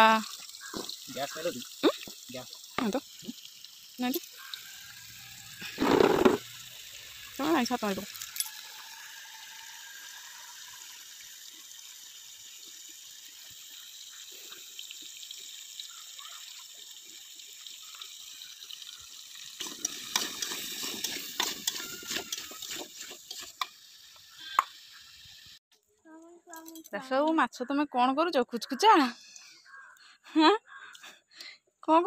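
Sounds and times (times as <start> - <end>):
potatoes sizzling in oil: 0.0 - 25.6
spoon scraping and clinking: 19.6 - 23.7.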